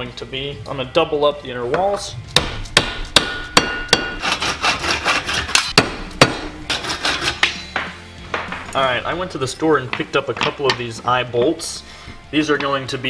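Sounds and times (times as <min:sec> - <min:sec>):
pipe knocking on metal anvil: 0:01.7 - 0:04.2.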